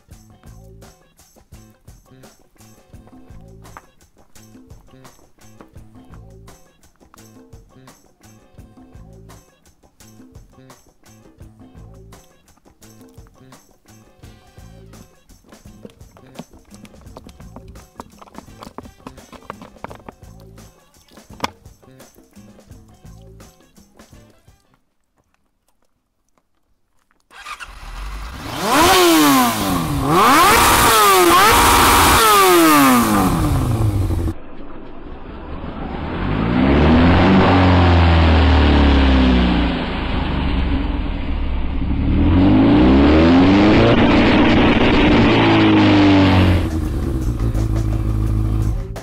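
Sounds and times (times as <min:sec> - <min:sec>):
motorcycle engine revving: 0:27.3 - 0:49.0.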